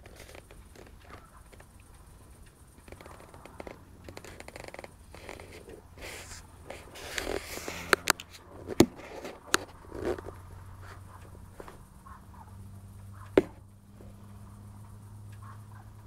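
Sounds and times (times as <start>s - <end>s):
sharp clicks: 0.0s - 16.0s
camera handling noise: 2.8s - 10.4s.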